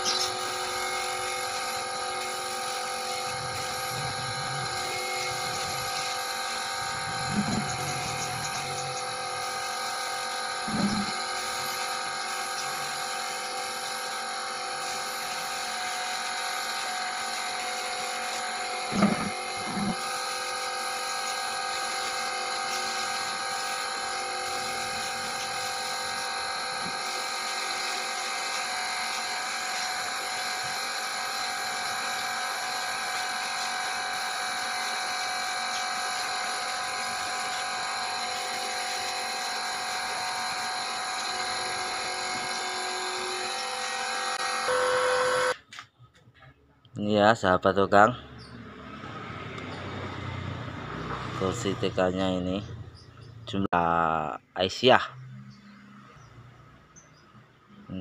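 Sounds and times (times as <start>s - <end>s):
spray gun whining: 0.0s - 45.6s.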